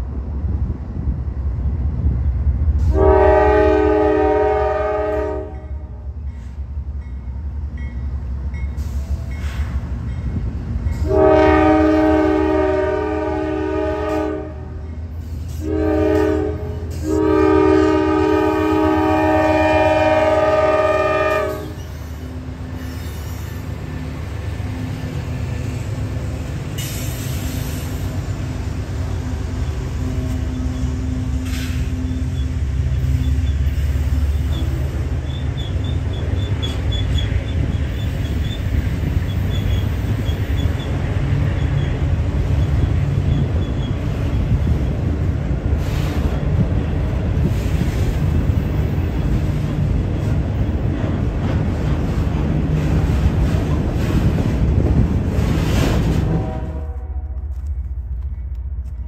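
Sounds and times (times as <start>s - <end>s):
locomotive engine rumble: 0.0s - 59.0s
train wheels on rails: 0.0s - 59.0s
locomotive air horn: 2.8s - 6.2s, 11.0s - 14.9s, 15.5s - 21.9s, 56.0s - 57.7s.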